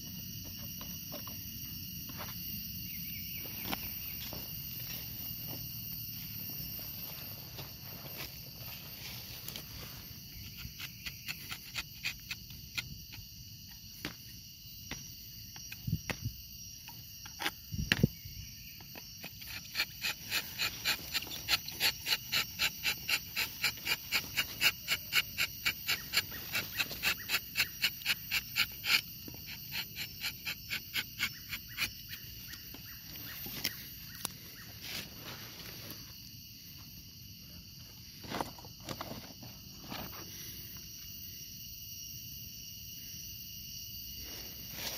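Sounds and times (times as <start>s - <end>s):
insects droning: 0.0s - 44.9s
knife scraping tree bark: 10.3s - 13.3s, 19.2s - 34.3s.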